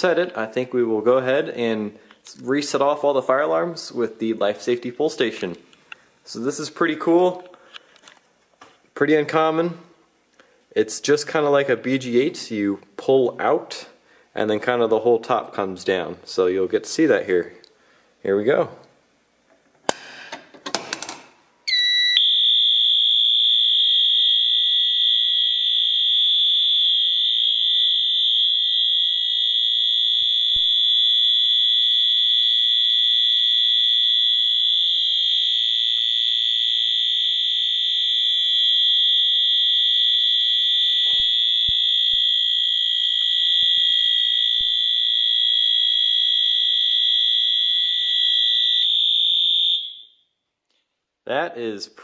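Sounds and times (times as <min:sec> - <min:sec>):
fire alarm horn tone: 0:21.7 - 0:50.4.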